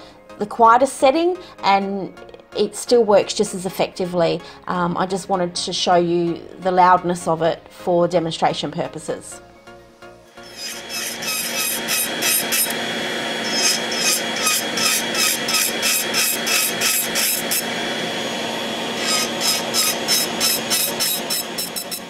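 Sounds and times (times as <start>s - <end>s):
electric nail file grinding: 10.3s - 22.0s
extractor fan running: 10.3s - 22.0s.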